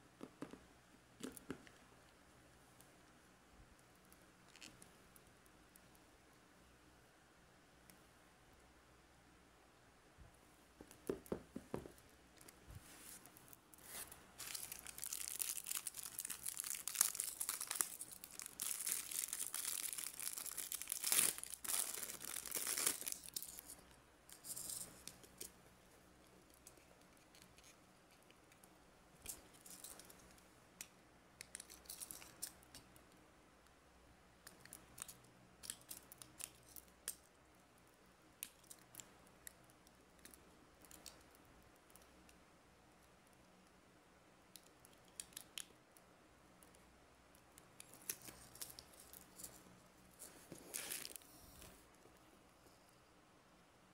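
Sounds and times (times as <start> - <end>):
plastic packaging crinkling and tearing: 13.9 - 23.8, 50.2 - 51.2.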